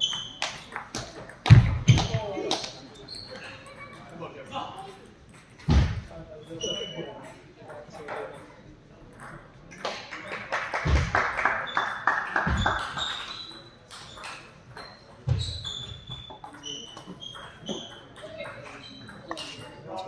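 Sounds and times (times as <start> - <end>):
shoe squeaks: 0.0 - 0.8, 2.9 - 3.9, 6.3 - 7.3, 11.7 - 20.0.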